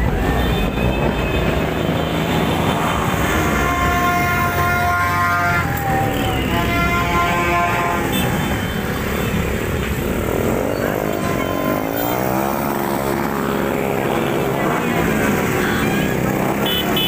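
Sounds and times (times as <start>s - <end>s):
motorcycles riding past: 1.5s - 17.0s.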